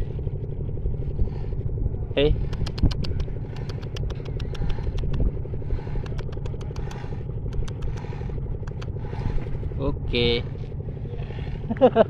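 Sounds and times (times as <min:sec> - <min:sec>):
engine idling: 0:00.0 - 0:12.0
sharp ticks: 0:02.4 - 0:09.2.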